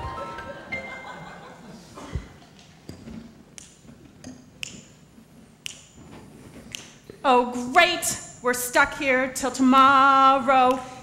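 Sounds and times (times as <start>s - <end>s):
sharp clicks and taps on stage: 2.2s - 7.1s.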